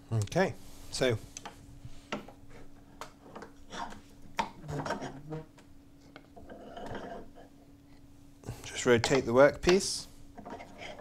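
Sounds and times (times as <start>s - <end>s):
hand rubbing wooden panel: 4.6s - 5.5s.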